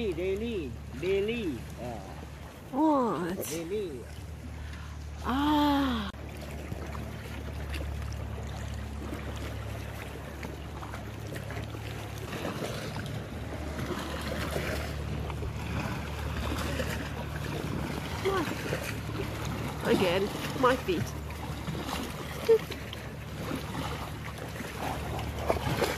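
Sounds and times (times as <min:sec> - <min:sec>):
steady low hum: 0:00.0 - 0:25.9
water splashing around canoe: 0:00.0 - 0:25.9
woman saying ah: 0:05.2 - 0:06.1.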